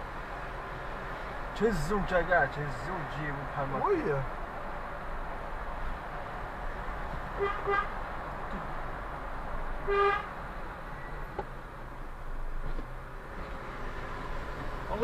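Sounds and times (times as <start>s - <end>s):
car hum while driving: 0.0s - 15.0s
car horn honking: 7.4s - 7.9s, 9.8s - 10.3s.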